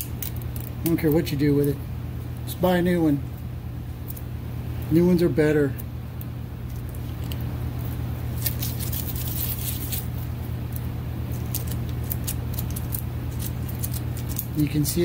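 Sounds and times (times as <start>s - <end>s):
steady low hum: 0.0s - 15.0s
rubber gloves crinkling: 6.2s - 15.0s.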